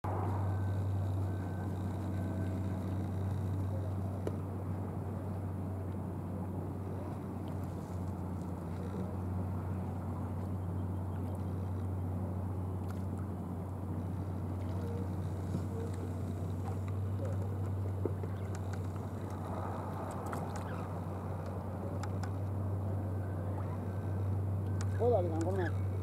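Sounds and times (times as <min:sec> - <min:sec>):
low engine hum: 0:00.0 - 0:26.0
outdoor noise: 0:00.0 - 0:26.0
faint ticks: 0:00.6 - 0:04.4, 0:14.6 - 0:22.6.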